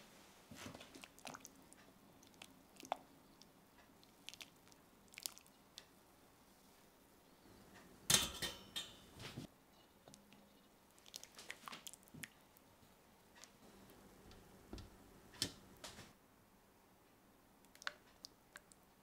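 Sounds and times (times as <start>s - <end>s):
wet squishes of meat: 0.7s - 5.6s, 10.9s - 12.4s.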